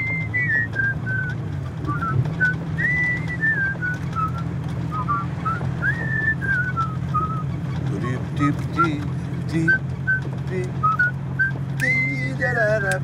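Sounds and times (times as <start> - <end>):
men whistling a tune: 0.0 - 12.4
car drone from inside cabin: 0.0 - 13.0.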